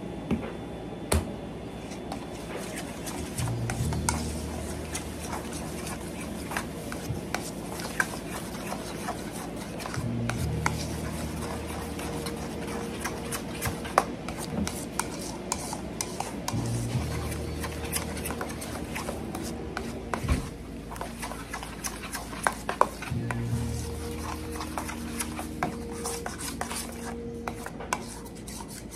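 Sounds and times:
low steady hum: 0:00.0 - 0:28.9
utensil stirring in metal bowl: 0:01.8 - 0:28.9.

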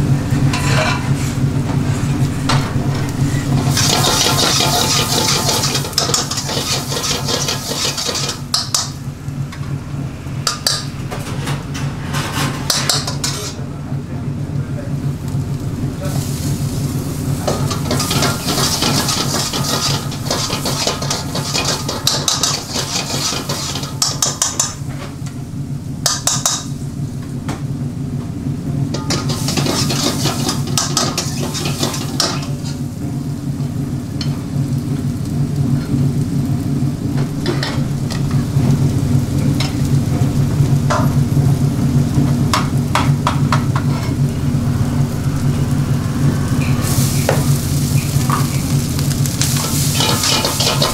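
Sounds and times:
food sizzling in a wok: 0:00.0 - 0:09.4, 0:15.0 - 0:27.2, 0:28.6 - 0:50.9
steady low hum: 0:00.0 - 0:50.9
ladle scraping and clinking wok: 0:00.4 - 0:02.1, 0:03.3 - 0:09.0, 0:10.5 - 0:13.6, 0:16.1 - 0:25.0, 0:29.0 - 0:32.8, 0:43.6 - 0:44.3, 0:45.5 - 0:50.9.

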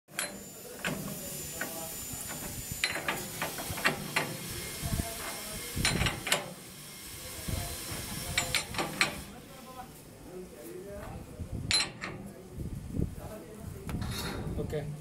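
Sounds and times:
spanner clicking on metal nut: 0:00.1 - 0:04.4, 0:05.8 - 0:06.5, 0:08.4 - 0:09.2, 0:11.7 - 0:12.2
steady hiss: 0:00.1 - 0:13.9.

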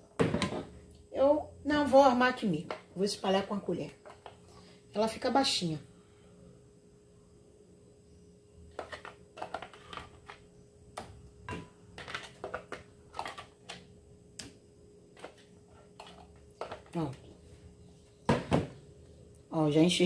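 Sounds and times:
spatula scraping plastic bowl: 0:08.7 - 0:10.4.

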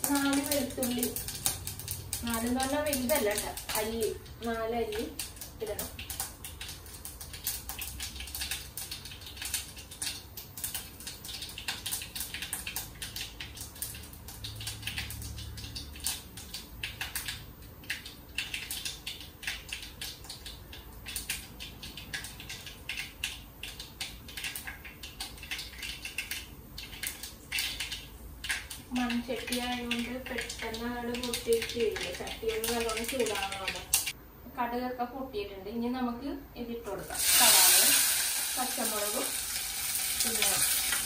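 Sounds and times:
seeds popping in hot oil: 0:00.0 - 0:34.2, 0:36.9 - 0:41.0.

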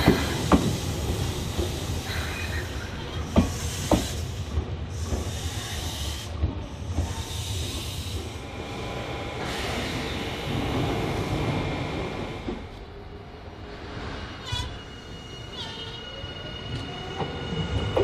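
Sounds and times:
air hiss: 0:00.0 - 0:08.3
electric train rail rumble: 0:00.0 - 0:18.0.

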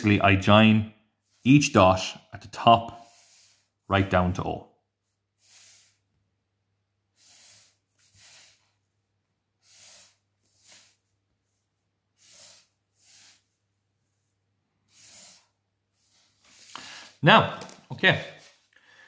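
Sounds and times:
person breathing softly: 0:03.0 - 0:03.8, 0:05.3 - 0:06.2, 0:07.1 - 0:09.0, 0:09.6 - 0:17.2, 0:18.7 - 0:19.0.

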